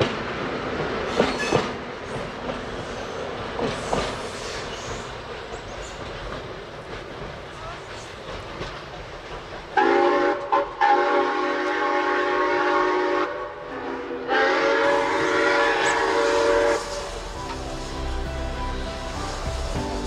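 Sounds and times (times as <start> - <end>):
steam locomotive whistle blasts: 9.8 - 19.7.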